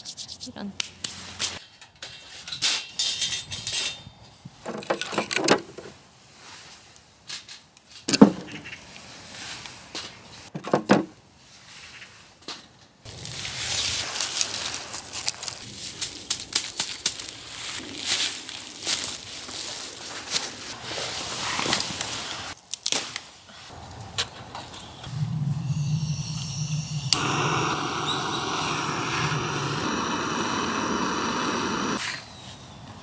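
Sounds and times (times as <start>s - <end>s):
footsteps in dry leaves: 13.1s - 22.8s
twigs snapping: 22.6s - 23.3s.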